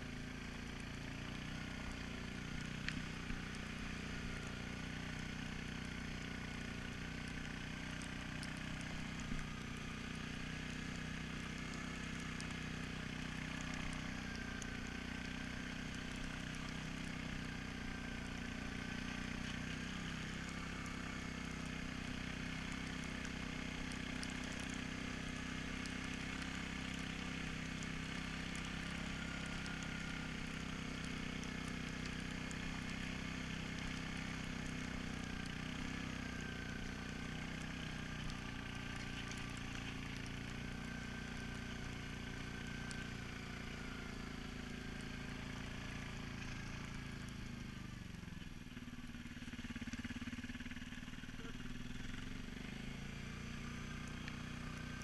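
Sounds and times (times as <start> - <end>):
quad bike engine running: 0.0 - 55.0.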